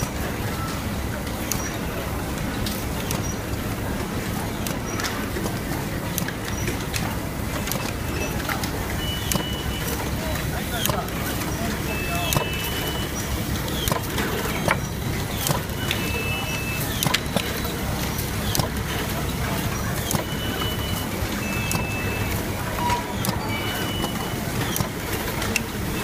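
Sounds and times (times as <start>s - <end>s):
machine clicks and knocks: 0.0s - 26.0s
workshop noise: 0.0s - 26.0s.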